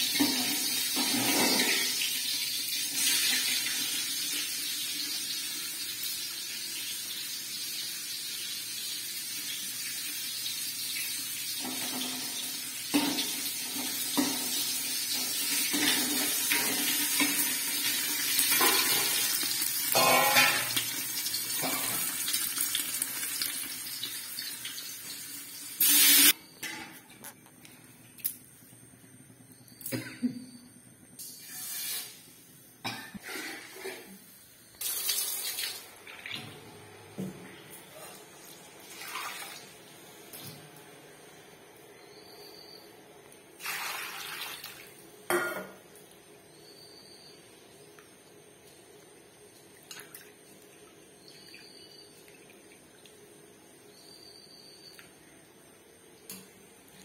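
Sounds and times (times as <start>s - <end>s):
lentils sizzling in oil: 11.0s - 26.4s.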